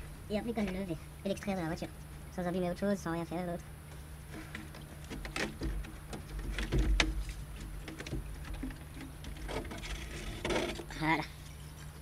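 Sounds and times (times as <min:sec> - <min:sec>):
dull thumps: 0:04.3 - 0:10.8.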